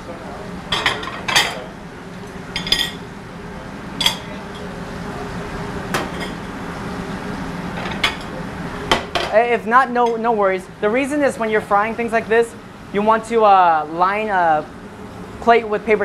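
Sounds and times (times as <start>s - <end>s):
steady low hum: 0.0s - 16.0s
metal cookware clinking: 2.6s - 3.0s.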